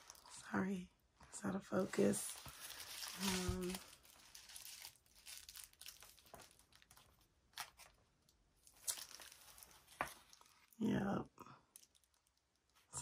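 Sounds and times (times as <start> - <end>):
paper rustling: 1.9 - 8.0, 8.7 - 10.7.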